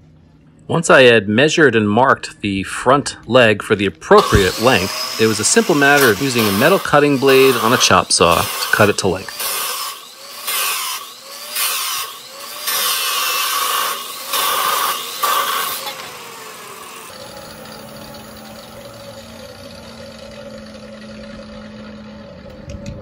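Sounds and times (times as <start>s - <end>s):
chop saw cutting metal tubing: 4.1s - 20.0s.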